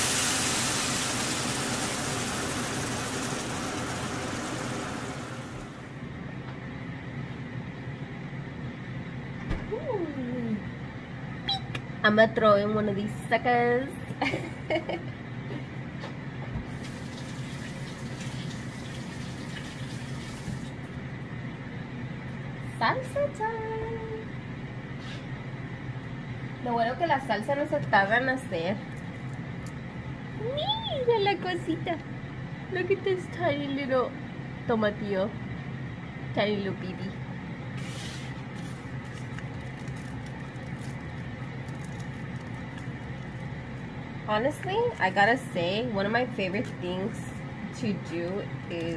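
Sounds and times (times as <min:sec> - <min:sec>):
steady low hum: 0:00.0 - 0:17.0, 0:20.6 - 0:48.9
faucet running into sink: 0:16.7 - 0:20.8.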